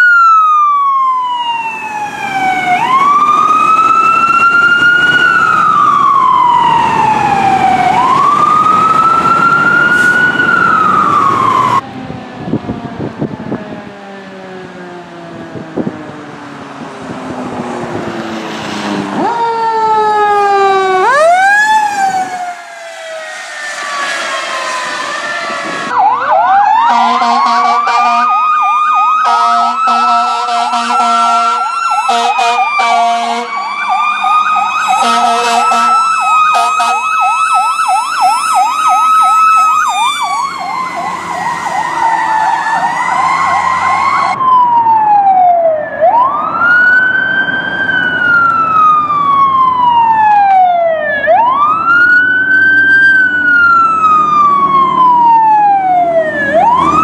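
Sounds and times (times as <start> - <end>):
electronic yelp siren: 0.0 - 16.4, 19.2 - 57.0
siren whine: 0.0 - 16.9, 17.5 - 57.0
air horn blasts: 26.9 - 28.3, 29.2 - 33.6, 35.0 - 37.0.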